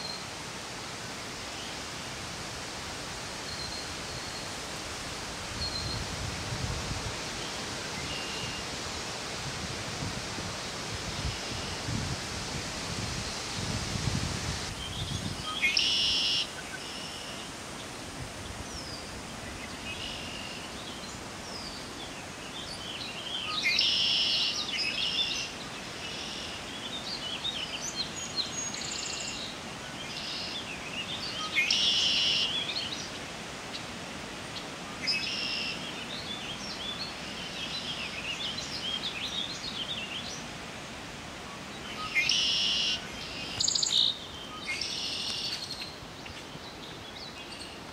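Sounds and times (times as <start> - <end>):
blackbird buzzy trilling song: 14.8 - 17.4, 41.9 - 45.9.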